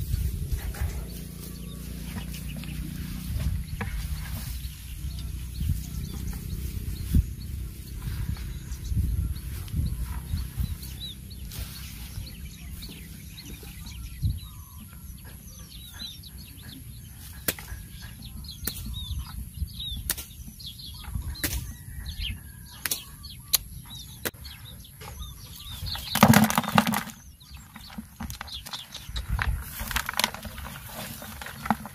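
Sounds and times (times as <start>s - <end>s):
small birds chirping: 0.0s - 31.9s
fish thrashing and splashing: 26.0s - 28.9s, 29.6s - 31.9s.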